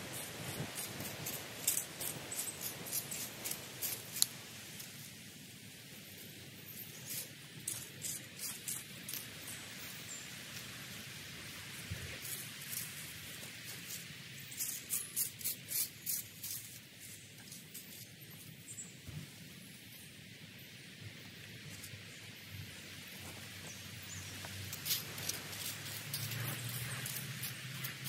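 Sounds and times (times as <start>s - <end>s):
wind noise: 0.0s - 4.7s
garden shears snipping: 0.0s - 4.9s, 24.4s - 28.0s.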